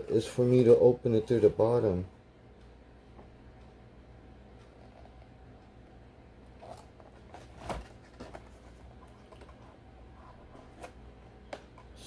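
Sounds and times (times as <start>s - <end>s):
hands handling cardboard box: 6.6s - 11.0s.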